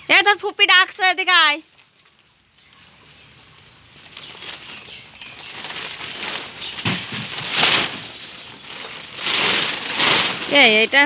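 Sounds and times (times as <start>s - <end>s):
plastic sacking rustling: 3.9s - 11.0s.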